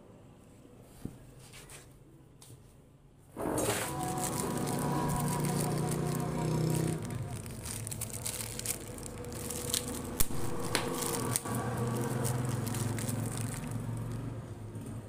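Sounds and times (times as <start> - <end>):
plastic packet crinkling: 3.5 - 14.5.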